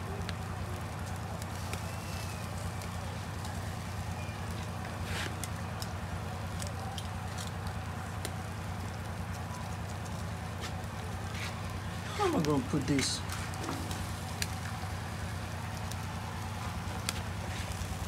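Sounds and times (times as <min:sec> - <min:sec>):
charcoal fire crackling: 0:00.0 - 0:18.0
sharp pops of dripping juices: 0:05.3 - 0:17.9.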